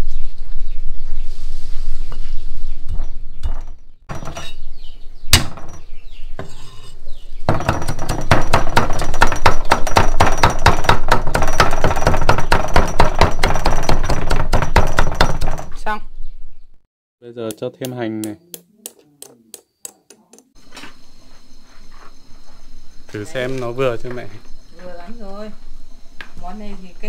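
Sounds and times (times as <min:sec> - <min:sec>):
cleaver chopping on wooden block: 0:07.5 - 0:15.6.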